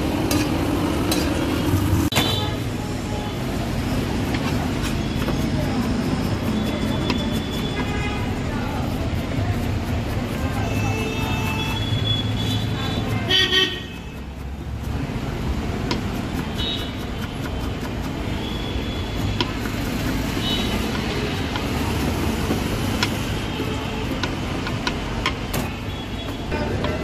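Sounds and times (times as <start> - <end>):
road noise: 0.0 - 27.0
car horns tooting: 10.7 - 14.2
knife tapping on chopping board: 23.0 - 23.2, 24.1 - 25.4.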